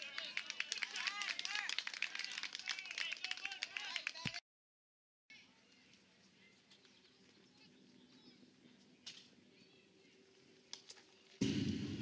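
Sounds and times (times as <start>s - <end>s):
crowd noise and voices: 0.0s - 4.4s.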